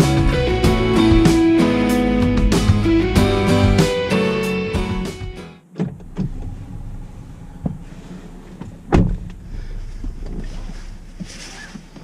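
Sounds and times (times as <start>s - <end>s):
car door shutting: 5.6s - 12.0s
steady low hum: 5.8s - 12.0s
clothing rustle: 6.3s - 12.0s.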